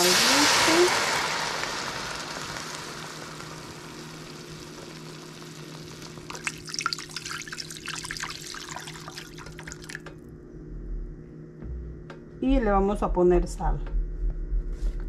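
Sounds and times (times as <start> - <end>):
water sizzling in hot pot: 0.0 - 10.0
water splashing into pot: 0.0 - 10.1
faint steady hum: 0.0 - 15.0.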